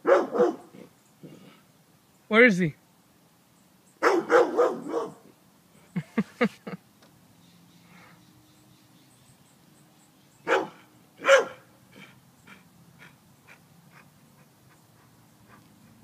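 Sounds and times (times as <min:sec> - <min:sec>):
dog barking: 0:00.0 - 0:00.8, 0:04.0 - 0:05.3, 0:10.4 - 0:11.7.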